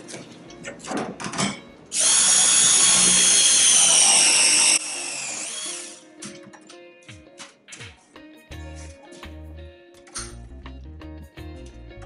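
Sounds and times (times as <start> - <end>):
press tool motor whining: 2.0 - 6.0.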